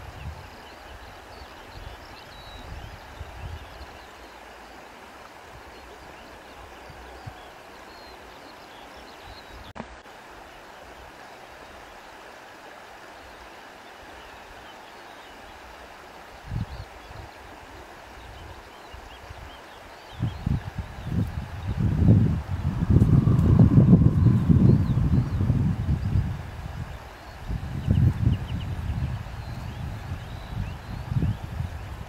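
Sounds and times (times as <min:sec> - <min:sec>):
flowing water rushing: 0:00.0 - 0:32.0
wind buffeting microphone: 0:19.3 - 0:32.0.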